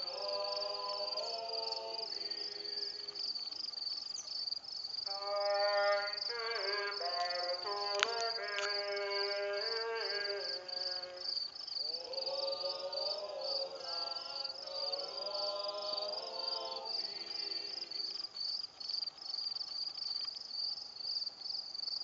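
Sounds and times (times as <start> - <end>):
voices singing slow chant: 0.0 - 4.0, 5.0 - 18.5
crickets chirping: 0.0 - 22.0.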